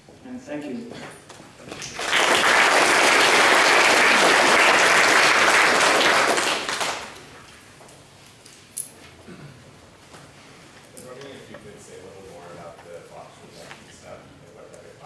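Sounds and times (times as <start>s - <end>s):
audience applauding: 1.7s - 7.2s.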